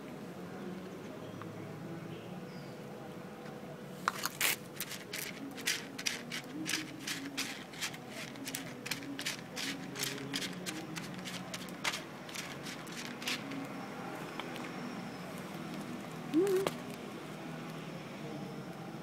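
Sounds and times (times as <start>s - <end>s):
cat chewing and lapping food: 4.8s - 13.8s.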